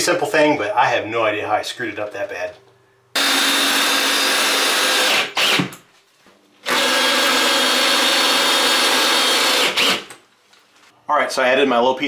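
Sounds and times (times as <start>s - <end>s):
cordless drill driving screws: 3.2s - 5.7s, 6.6s - 10.1s.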